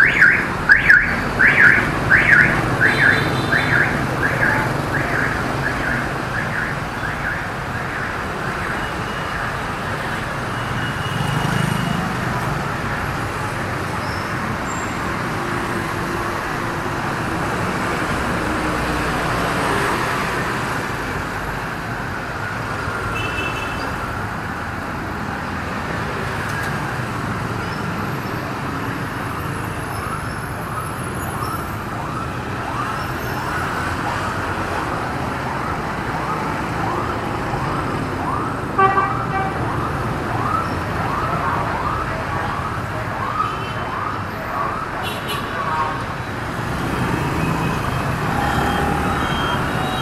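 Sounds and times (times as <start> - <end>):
emergency siren: 0.0 - 24.4, 25.2 - 50.0
street traffic: 0.0 - 50.0
vehicle horn toot: 38.8 - 39.6.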